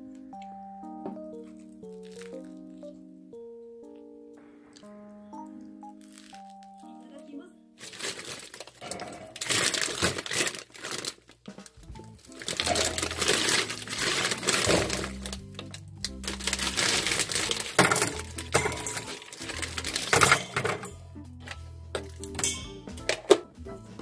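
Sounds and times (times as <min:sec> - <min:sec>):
plastic bag crinkling: 0:01.9 - 0:02.6, 0:06.0 - 0:06.8, 0:07.8 - 0:20.9
background music with bass line: 0:11.7 - 0:24.0.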